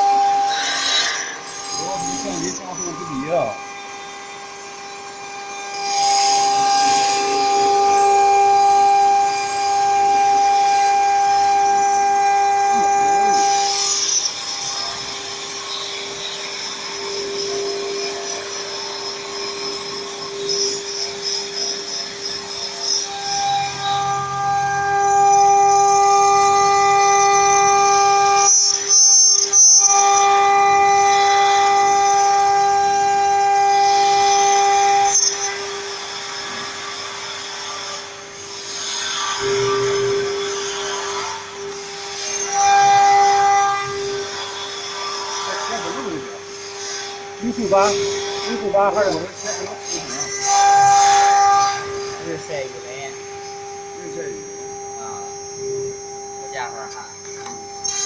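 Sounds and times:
shrill high-pitched sound: 0.0s - 35.5s
router spindle whining: 0.0s - 58.0s
high hiss of cutting: 0.5s - 24.5s, 31.0s - 57.2s.

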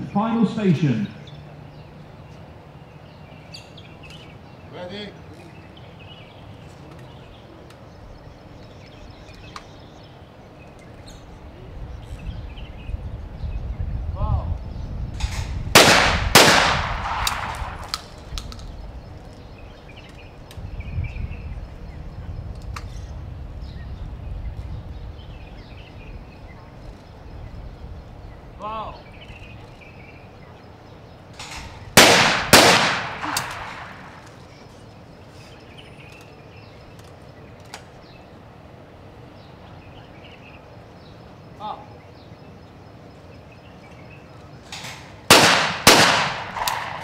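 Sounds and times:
shotgun shots with echo: 15.2s - 18.1s, 31.4s - 34.2s, 44.8s - 47.0s.

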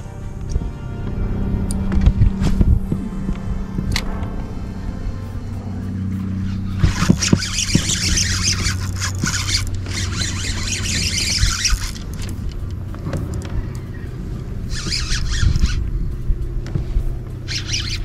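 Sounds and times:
steady low hum: 0.0s - 18.0s
fishing reel buzzing: 3.6s - 18.0s.

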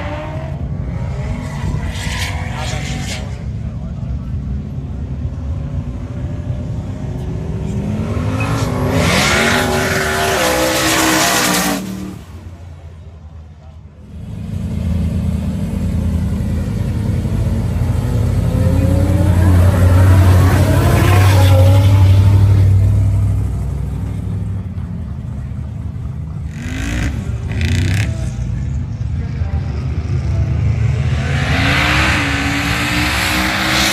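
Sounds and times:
racing car engines accelerating: 0.0s - 13.0s, 14.0s - 33.9s.

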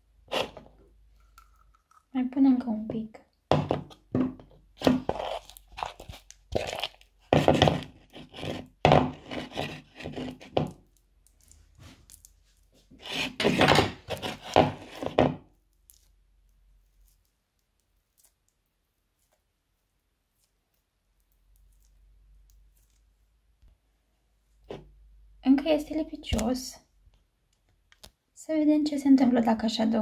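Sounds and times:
spoon scraping a plastic bowl: 0.3s - 1.9s, 3.8s - 10.8s, 12.9s - 15.3s
hands squishing sticky slime: 4.6s - 8.8s.

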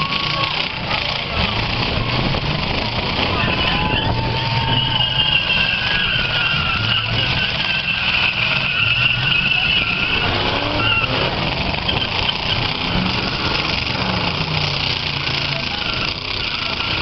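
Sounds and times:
car engines running hard: 0.0s - 17.0s
tyre squeal: 3.2s - 14.1s, 15.2s - 17.0s.

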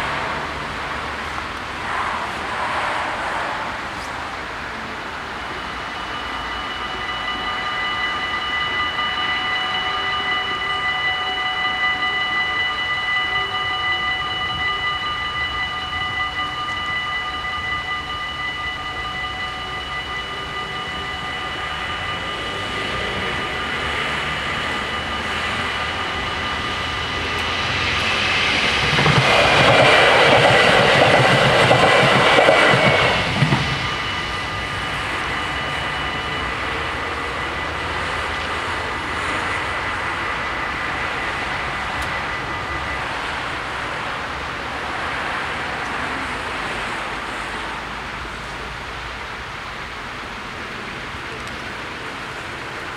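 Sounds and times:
level-crossing bells ringing: 0.0s - 1.2s, 4.7s - 48.1s
train passing with wheel clatter: 0.0s - 52.9s.

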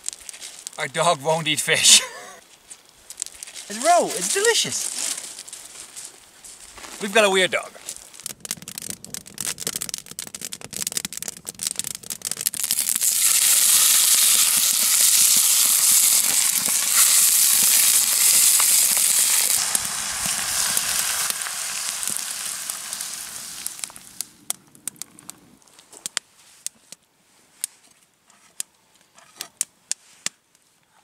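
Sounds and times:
campfire crackling and popping: 0.0s - 27.8s, 28.4s - 30.4s
fish fillets sizzling in a pan: 12.6s - 24.2s.

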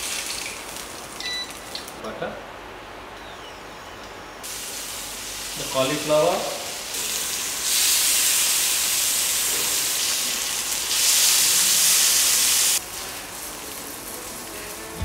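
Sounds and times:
fish sizzling on a grill pan: 0.0s - 1.8s, 4.5s - 15.0s.

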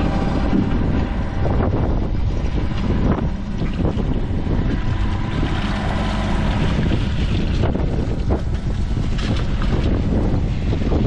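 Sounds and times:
digger engine running: 0.0s - 11.0s
wind buffeting microphone: 0.0s - 11.0s
bucket digging soil: 2.6s - 10.1s.

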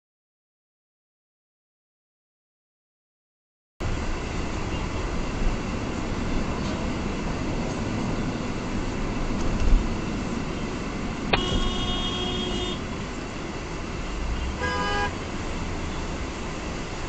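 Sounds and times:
car cabin road and engine noise: 3.8s - 17.0s
car horn honking: 11.3s - 12.9s, 14.4s - 15.3s.

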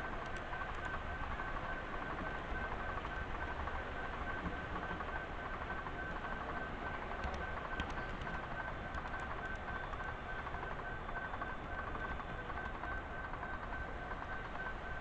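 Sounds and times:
faint clicks: 0.2s - 1.0s, 7.2s - 10.1s.

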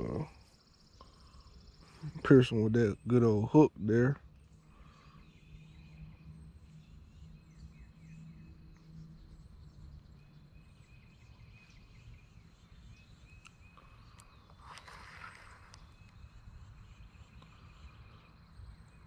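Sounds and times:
low steady hum: 0.0s - 19.0s
small birds chirping: 0.0s - 19.0s
rustle: 13.3s - 16.4s
high insect buzz: 14.6s - 16.0s.

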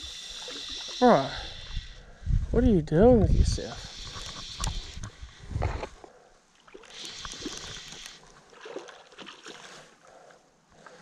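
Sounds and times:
stream water splashing over stones: 6.6s - 9.9s.

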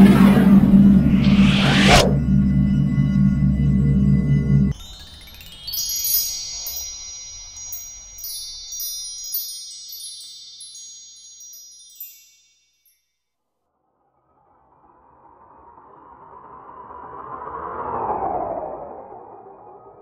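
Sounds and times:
loud intro music: 0.0s - 6.5s
high chime tones: 0.0s - 13.2s.

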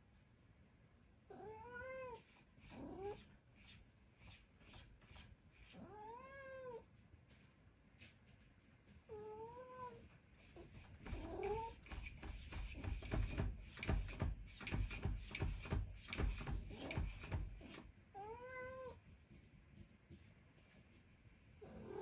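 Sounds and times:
cat meowing: 1.3s - 2.2s, 5.8s - 6.8s, 9.1s - 10.0s, 18.2s - 19.0s
cat scratching at door: 10.4s - 17.9s.

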